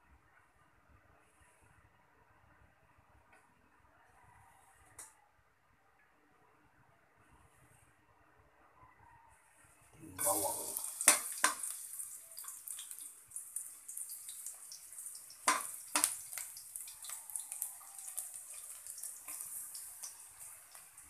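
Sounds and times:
garlic sizzling in hot oil: 10.1s - 21.0s.

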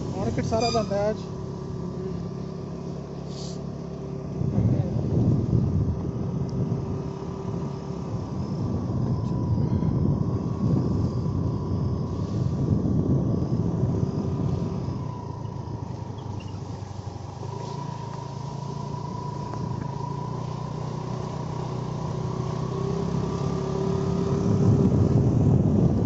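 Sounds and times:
road noise: 0.0s - 26.0s
vehicle engine: 0.0s - 26.0s.

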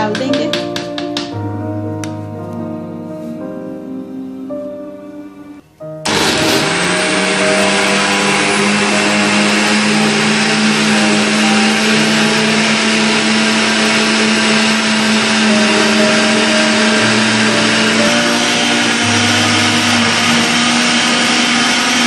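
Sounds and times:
blender whirring: 6.0s - 22.0s.

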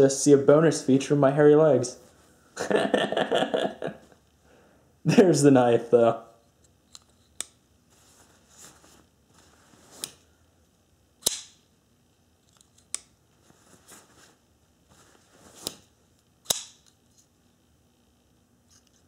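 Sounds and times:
cloth rustling: 7.8s - 10.2s, 13.3s - 16.0s
knife blade clicking and snapping: 11.2s - 11.6s, 16.4s - 16.9s.

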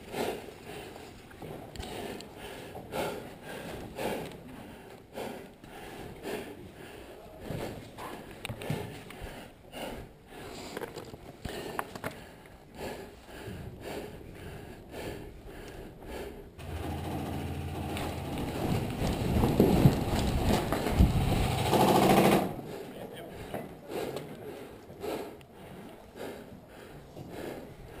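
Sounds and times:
gear rustling: 16.6s - 22.4s
steady rattling noise: 16.6s - 22.6s
footsteps on sand and rubble: 18.2s - 21.2s.

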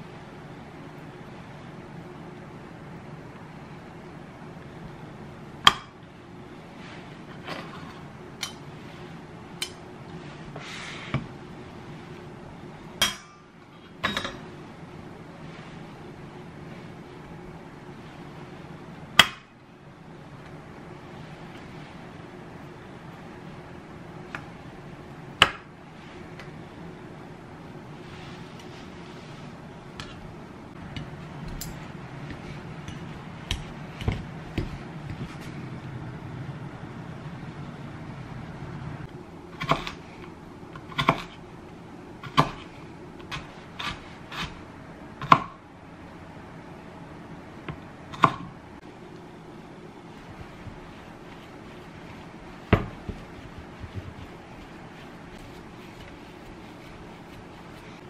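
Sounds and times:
faint steady hum: 0.0s - 58.0s
short scrape: 10.3s - 11.1s.

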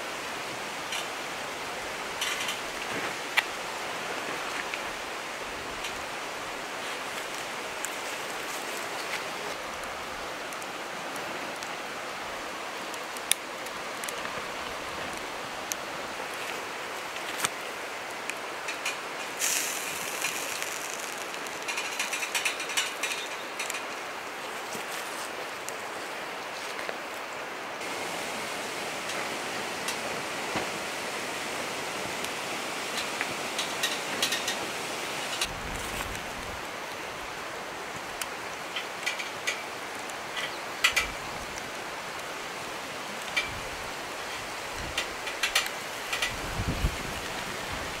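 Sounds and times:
flowing river water: 0.0s - 48.0s
wood fire popping: 17.2s - 24.0s.

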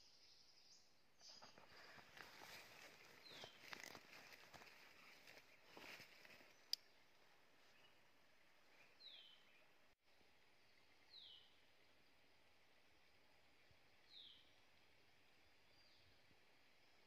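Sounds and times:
faint forest background hiss: 0.0s - 17.0s.

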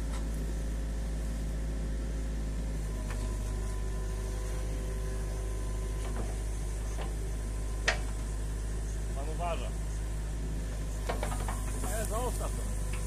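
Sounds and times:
excavator diesel engine running: 0.0s - 13.0s
faint knocks: 11.0s - 12.0s.

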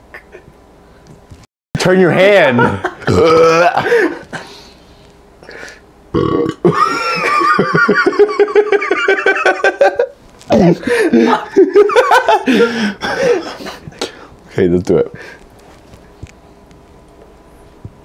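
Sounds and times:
man belching loudly: 3.0s - 3.8s, 6.1s - 6.8s.

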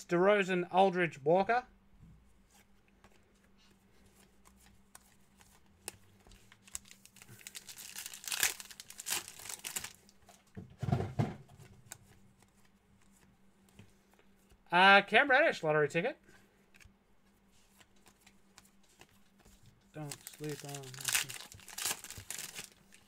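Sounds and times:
foil wrapper tearing and crinkling: 6.6s - 10.1s, 20.0s - 23.0s
dull thump: 10.6s - 11.5s.

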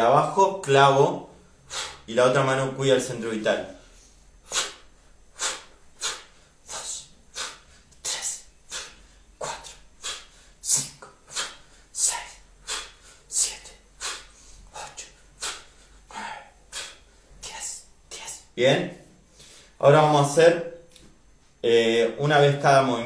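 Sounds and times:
sharp forceful exhalations: 1.6s - 2.1s, 3.8s - 18.5s.

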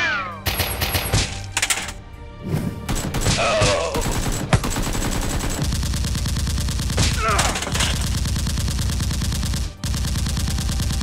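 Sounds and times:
background music: 0.0s - 11.0s
gunfire sound effects: 2.9s - 11.0s.

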